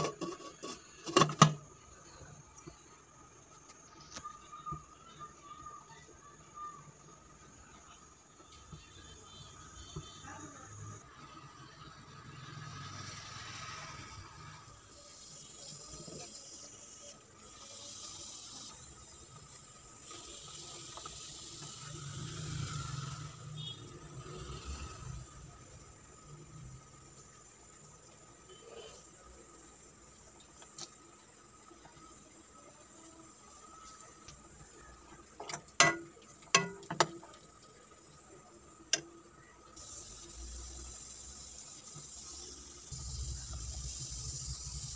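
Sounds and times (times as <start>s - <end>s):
ladle clinking against pot: 35.8s - 37.2s.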